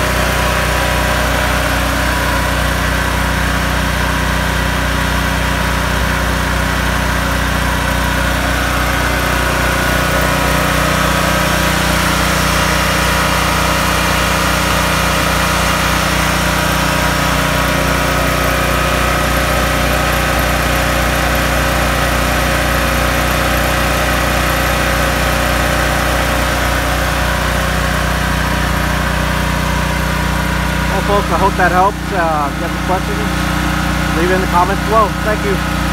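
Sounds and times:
generator engine running: 0:00.0 - 0:35.9.

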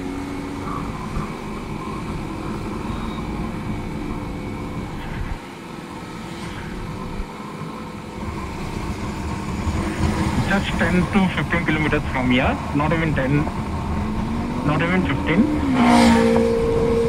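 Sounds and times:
motorcycle engine drone: 0:00.0 - 0:17.0.

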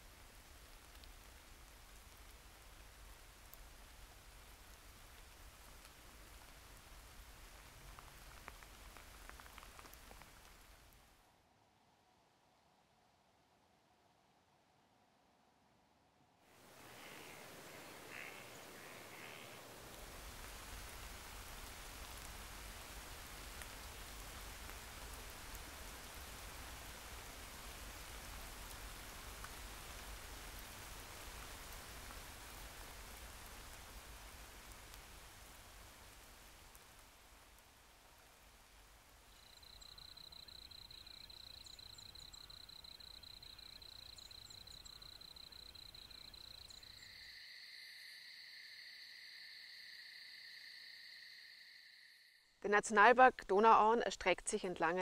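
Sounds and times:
light rain on water: 0:00.0 - 0:11.5, 0:16.4 - 0:47.5
soft ticks: 0:00.9 - 0:01.2, 0:07.8 - 0:10.6
steady hiss: 0:16.5 - 0:52.4.

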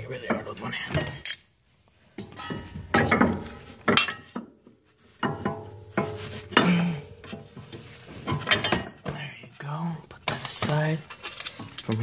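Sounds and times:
metal clanks and clinks: 0:02.1 - 0:09.4, 0:10.2 - 0:12.0
ringing metal knocks: 0:02.2 - 0:04.6, 0:05.2 - 0:09.2.

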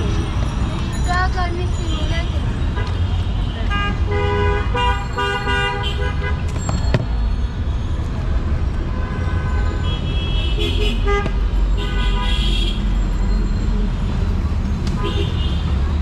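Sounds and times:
road traffic: 0:00.0 - 0:16.0
vehicle horns honking: 0:02.7 - 0:06.5, 0:08.9 - 0:13.0, 0:15.0 - 0:15.8.

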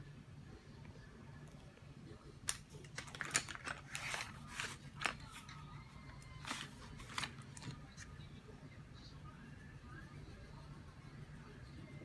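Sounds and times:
pencils clicking and tapping: 0:02.4 - 0:08.1
paper rustling: 0:02.8 - 0:05.7, 0:06.3 - 0:08.1.

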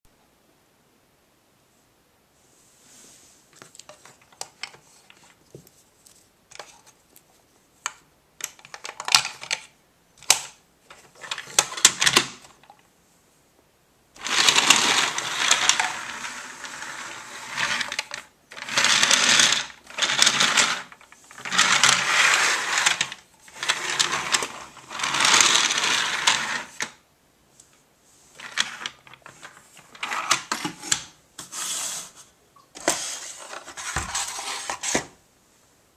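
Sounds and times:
plastic toy clicks and knocks: 0:07.8 - 0:12.7
toy train rattling on plastic track: 0:10.3 - 0:12.7, 0:14.2 - 0:27.0, 0:28.4 - 0:29.3, 0:29.9 - 0:30.6.

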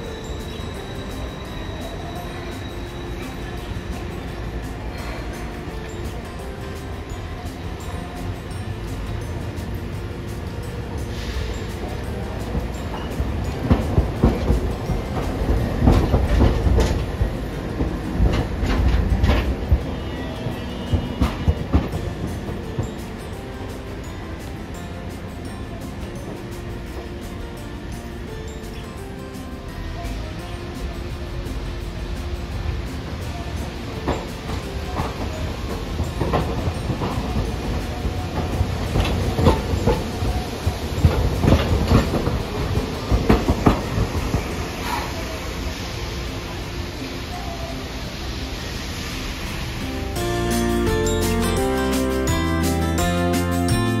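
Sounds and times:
streetcar rolling past rumble: 0:00.0 - 0:28.9, 0:29.5 - 0:54.0
wheels clacking over track joints: 0:07.6 - 0:27.9, 0:30.1 - 0:47.0.

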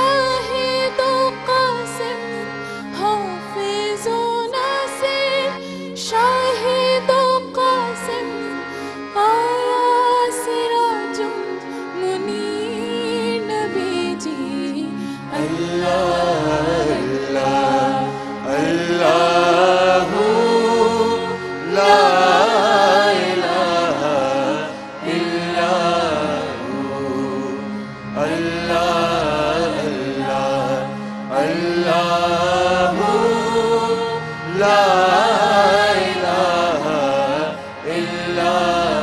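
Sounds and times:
ensemble singing: 0:12.0 - 0:39.0
man singing devotional song: 0:15.2 - 0:39.0.

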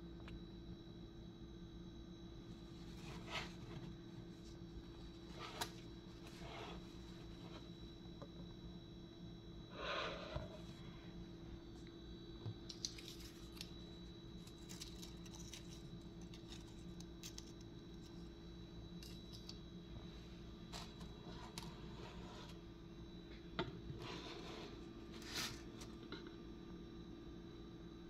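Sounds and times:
steady low hum: 0:00.0 - 0:28.0
scrape: 0:02.7 - 0:03.9, 0:05.3 - 0:07.7, 0:09.7 - 0:10.8, 0:20.7 - 0:22.6, 0:23.9 - 0:25.9.

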